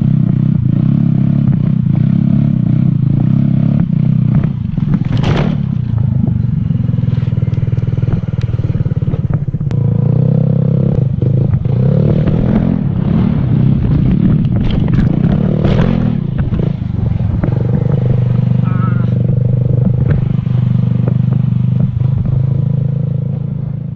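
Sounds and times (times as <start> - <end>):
scooter engine running: 0.0 - 23.9
clatter: 3.8 - 6.4, 13.8 - 17.9.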